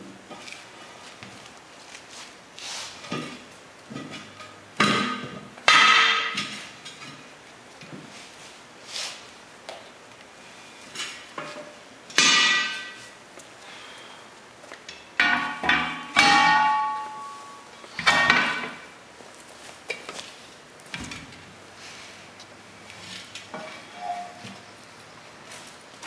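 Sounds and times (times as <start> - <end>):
metal bar clanging on wheel rims: 3.0 - 7.2, 11.0 - 13.2, 14.9 - 18.9, 23.4 - 24.5.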